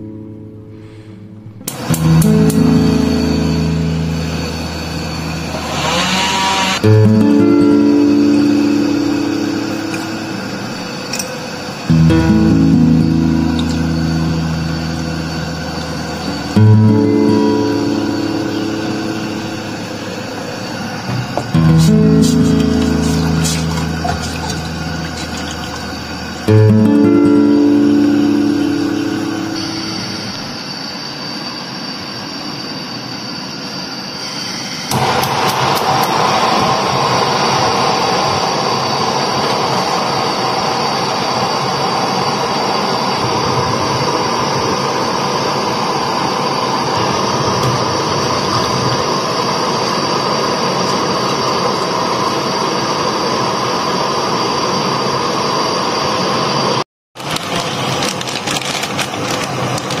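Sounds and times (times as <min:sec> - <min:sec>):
gas burners hissing: 0:01.3 - 1:00.0
burner igniter clicking: 0:01.6 - 0:02.7
plastic bag crinkling: 0:57.2 - 1:00.0.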